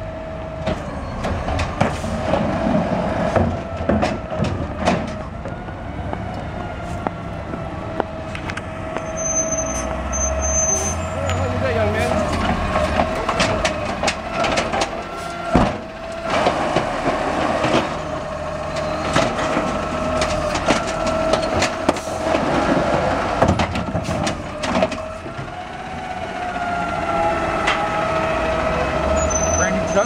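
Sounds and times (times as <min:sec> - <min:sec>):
metal clanks and knocks: 0:00.6 - 0:05.6, 0:12.0 - 0:18.1, 0:18.7 - 0:25.6
garbage truck hydraulics whining: 0:06.7 - 0:30.0
trash dropping into hopper: 0:12.2 - 0:18.1, 0:18.8 - 0:25.0.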